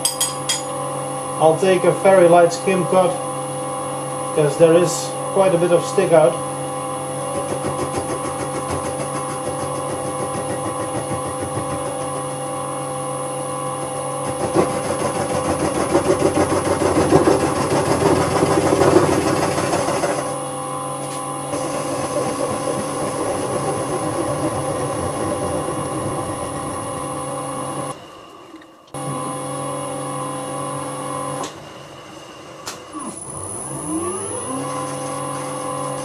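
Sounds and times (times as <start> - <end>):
lathe motor and gear hum: 1.3 - 36.0
lathe tool scraping metal: 4.7 - 20.4.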